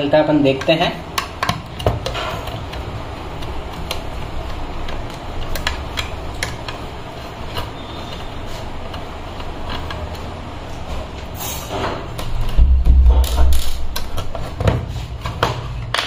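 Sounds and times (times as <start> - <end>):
steady low rumble: 12.3 - 14.4.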